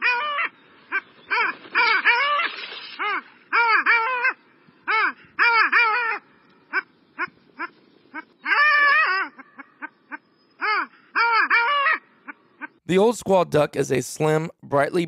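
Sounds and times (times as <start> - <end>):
ducks calling: 0.0 - 12.8.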